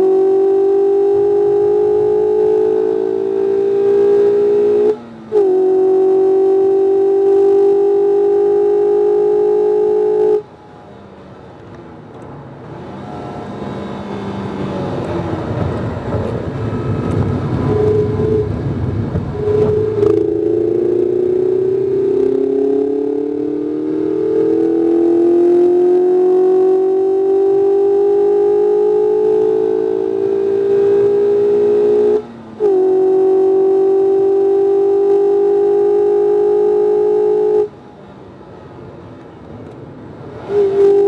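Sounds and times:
car engine revving: 0.0 - 10.6, 11.6 - 37.8, 40.1 - 41.0.

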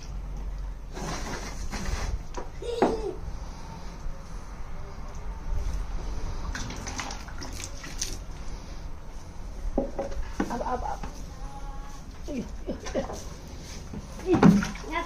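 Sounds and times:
water splashing and dripping: 6.5 - 8.4, 14.2 - 15.0.

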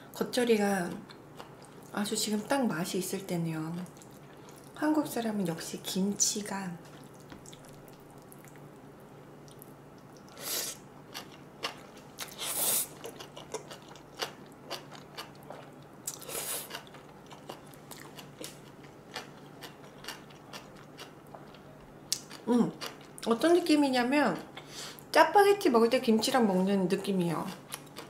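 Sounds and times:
wet chewing clicks and smacks: 6.9 - 8.7, 9.4 - 10.4, 13.0 - 23.3.

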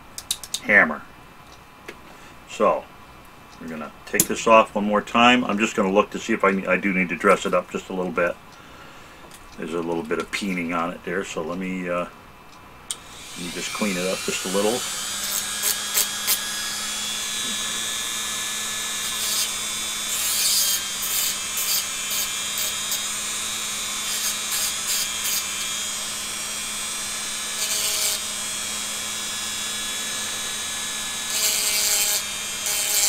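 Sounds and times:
rotary tool running: 13.0 - 33.0
metal part rasping on grinder: 13.2 - 18.2, 19.0 - 23.1, 24.0 - 25.7, 27.4 - 28.3, 31.2 - 33.0.

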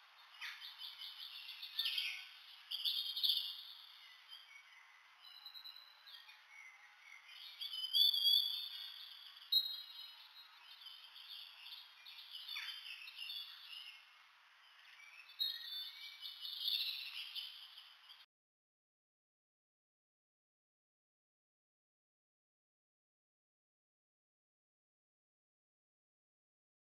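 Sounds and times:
high bird chirps: 0.2 - 14.1, 14.7 - 18.2
short whistled calls: 0.2 - 14.1, 14.8 - 18.2.

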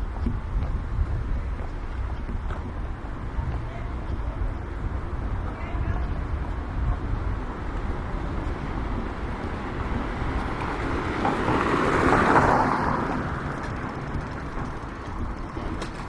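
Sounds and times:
low street rumble: 0.0 - 16.0
vehicle passing by: 6.6 - 15.5.

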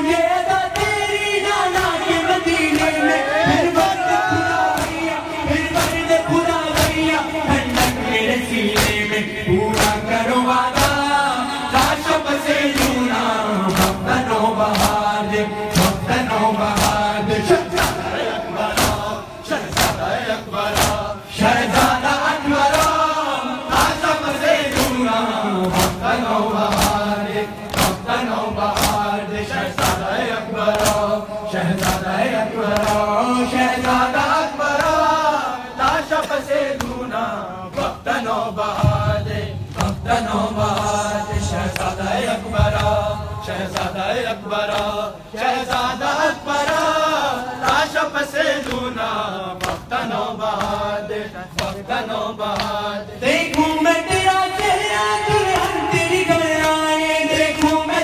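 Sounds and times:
men chanting in unison: 0.0 - 58.0
hands slapping chests: 2.6 - 3.0, 4.7 - 5.1, 5.7 - 6.1, 6.7 - 8.0, 8.7 - 9.1, 9.7 - 11.1, 11.8 - 35.1, 35.8 - 39.0, 39.7 - 47.0, 47.6 - 53.7, 55.5 - 55.8, 56.6 - 58.0.

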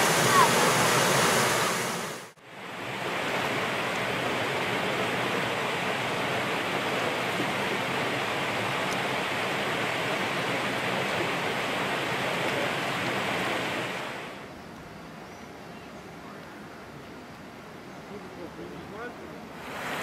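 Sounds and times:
running water rushing: 0.0 - 14.4, 18.8 - 20.0.

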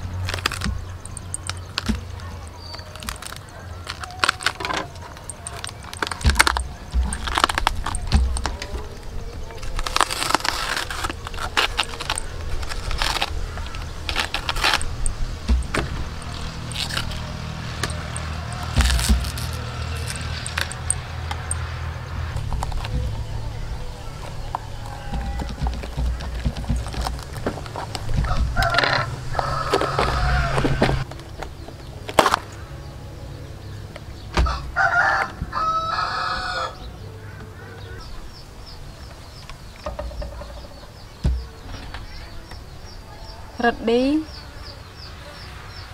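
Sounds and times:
knife cutting fibrous trunk: 0.0 - 21.7
rooster crowing: 13.4 - 26.3, 27.9 - 31.1, 34.4 - 38.1.

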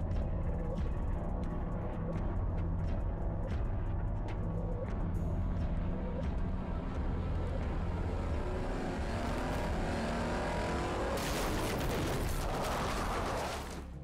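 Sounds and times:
car engine revving hard: 8.0 - 11.4
tyres skidding through dirt: 8.0 - 14.0.

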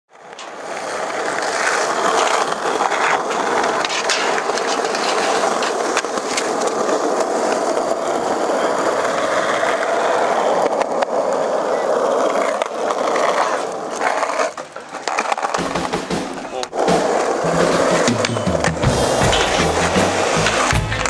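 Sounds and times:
skateboard clacks: 0.1 - 21.0
skateboard wheels rolling on concrete: 0.1 - 21.0
skateboard grinding on metal bar: 0.3 - 8.1, 12.3 - 21.0.

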